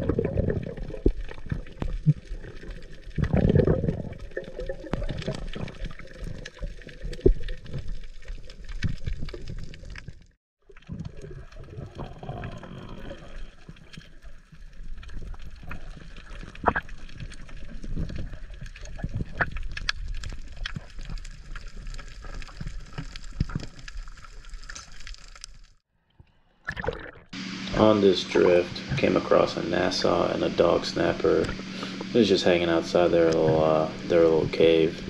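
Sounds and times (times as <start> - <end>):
sharp clicks and pops: 0.0 - 27.3
muffled underwater rush: 26.6 - 35.0.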